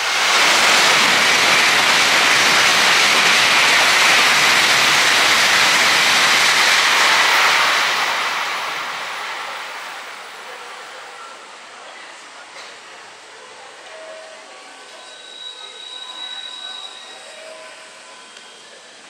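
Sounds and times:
train passing at high speed: 0.0s - 11.8s.

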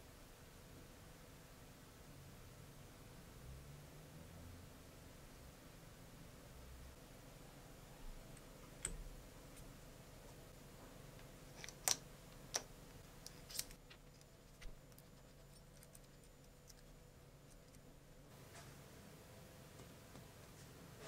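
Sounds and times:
faint steady hum: 0.0s - 21.0s
small parts clicking: 11.2s - 17.9s.

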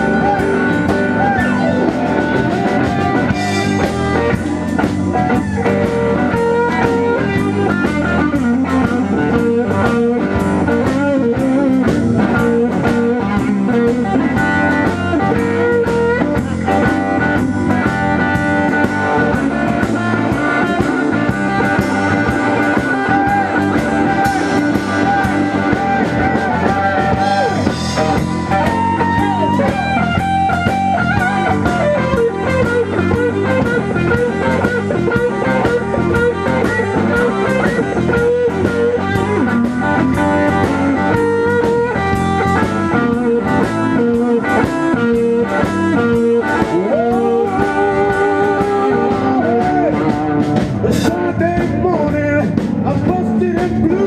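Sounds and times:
bass guitar: 0.0s - 54.0s
drum kit: 0.0s - 54.0s
electric guitar lead lines: 0.0s - 54.0s.

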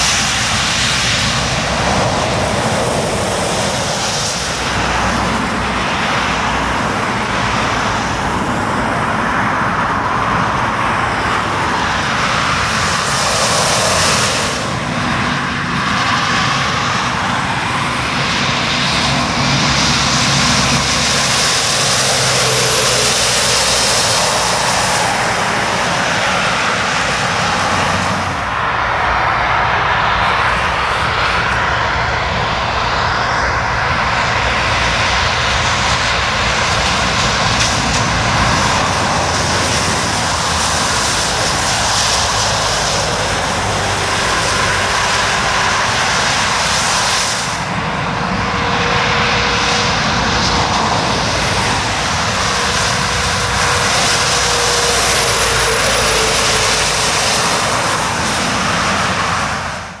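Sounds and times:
diesel engines droning: 0.0s - 60.0s
tyres hissing on wet road: 0.0s - 60.0s.

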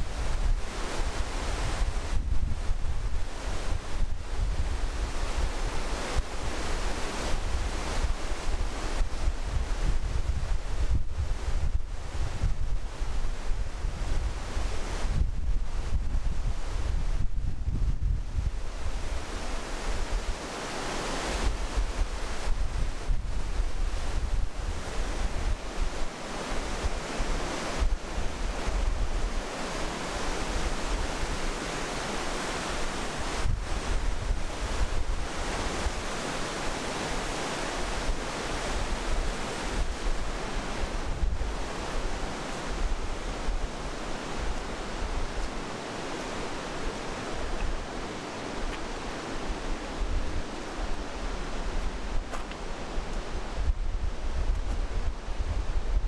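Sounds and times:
river rushing over rocks: 0.0s - 10.8s, 18.6s - 55.7s
wind buffeting microphone: 0.0s - 56.0s.

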